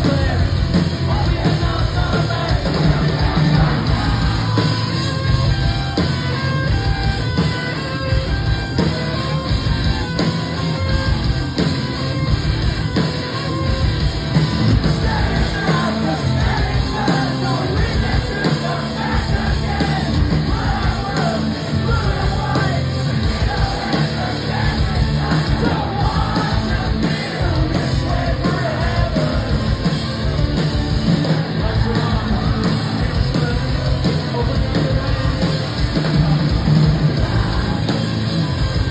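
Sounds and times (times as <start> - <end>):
bass guitar: 0.0 - 38.9
distorted electric guitars: 0.0 - 38.9
drums: 0.0 - 38.9
person singing and yelling: 14.9 - 29.9.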